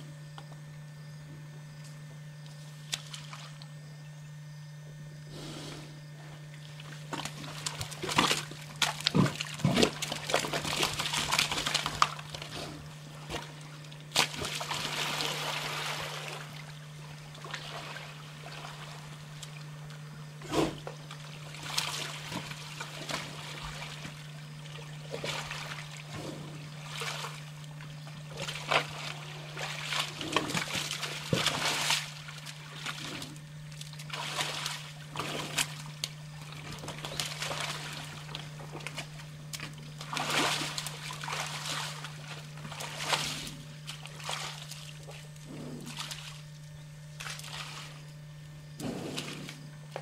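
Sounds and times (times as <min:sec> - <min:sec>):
mud and water splashing: 0:02.8 - 0:03.7, 0:06.5 - 0:48.2.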